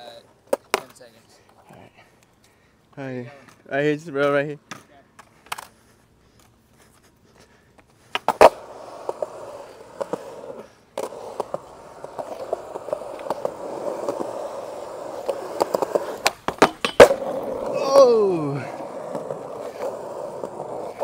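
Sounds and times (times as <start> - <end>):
skateboard wheels rolling on concrete: 0.0 - 21.0
skateboard clacking on ground: 0.4 - 1.6, 4.2 - 5.8, 7.7 - 21.0.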